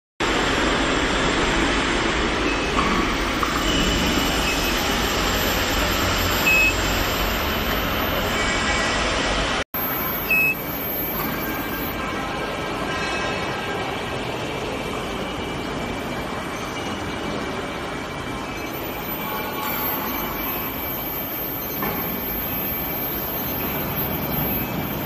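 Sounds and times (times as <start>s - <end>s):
factory machinery noise: 0.2s - 25.0s
short high beeps: 3.7s - 8.3s, 9.8s - 12.0s, 18.8s - 25.0s.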